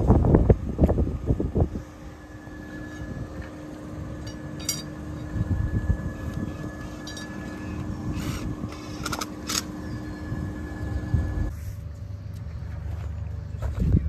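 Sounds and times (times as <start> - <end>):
wind buffeting microphone: 0.0 - 2.2, 5.2 - 7.0, 13.7 - 14.0
steady machine hum: 0.0 - 14.0.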